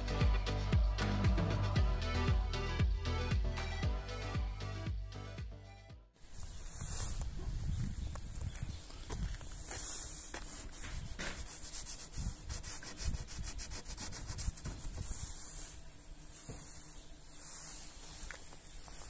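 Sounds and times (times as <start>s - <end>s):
fingers scratching frost on windshield: 9.8s - 19.0s.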